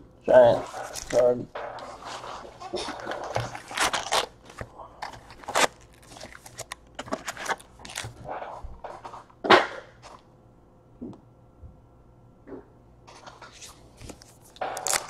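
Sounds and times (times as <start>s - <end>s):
card packs crinkling and clacking: 0.4s - 9.2s, 13.2s - 15.0s.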